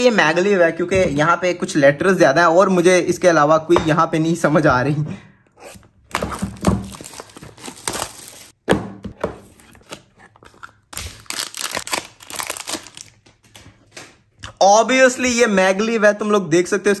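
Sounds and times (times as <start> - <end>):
plastic shrink wrap crinkling and tearing: 6.1 - 8.6, 9.5 - 13.6.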